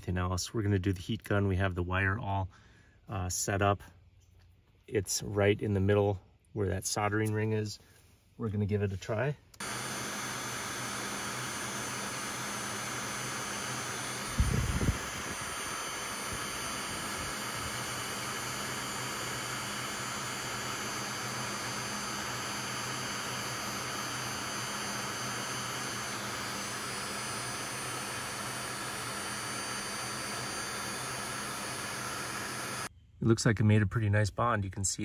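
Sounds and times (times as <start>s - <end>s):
heat gun blowing air: 9.6s - 32.9s.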